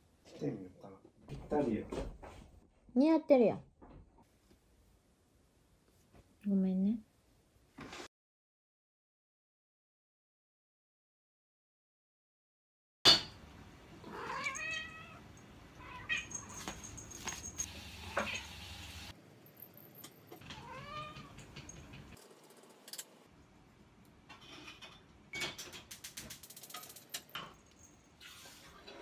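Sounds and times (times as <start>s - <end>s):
cat meowing: 14.0s - 16.6s, 20.4s - 21.5s.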